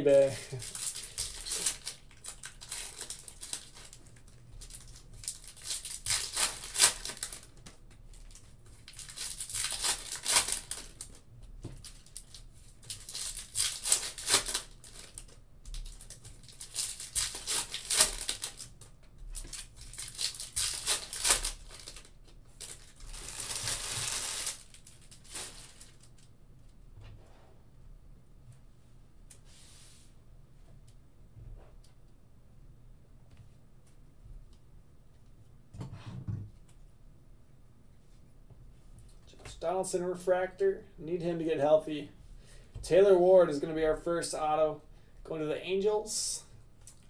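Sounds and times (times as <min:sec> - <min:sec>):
foil wrappers crinkling and tearing: 0:00.1 - 0:11.2, 0:11.8 - 0:26.3.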